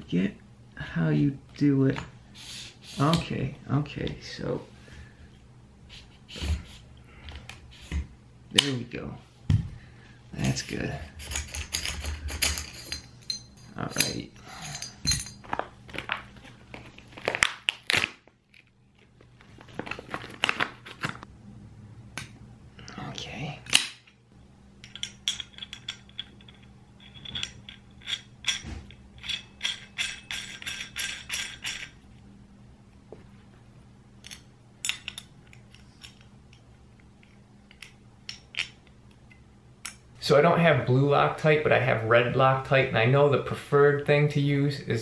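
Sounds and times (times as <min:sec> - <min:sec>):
faint steady hum: 0:00.0 - 0:45.0
clicks and clacks of metal parts: 0:10.4 - 0:15.6, 0:24.8 - 0:32.0
plastic bag crinkling: 0:15.5 - 0:21.2.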